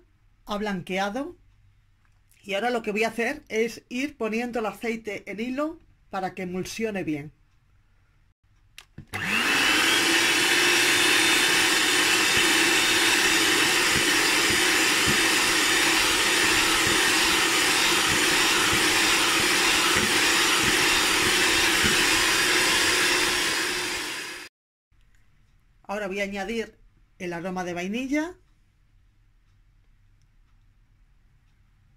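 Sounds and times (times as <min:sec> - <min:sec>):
electric hand mixer whirring: 0:09.0 - 0:24.5
beaters whipping eggs: 0:09.2 - 0:24.0.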